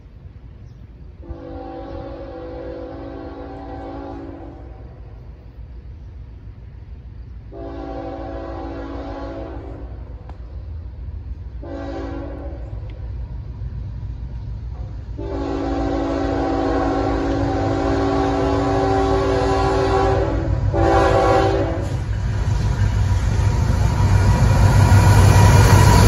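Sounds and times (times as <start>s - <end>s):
locomotive rumble: 0.0s - 26.0s
locomotive air horn blasts: 1.2s - 4.9s, 7.5s - 10.0s, 11.6s - 12.8s, 15.2s - 22.1s.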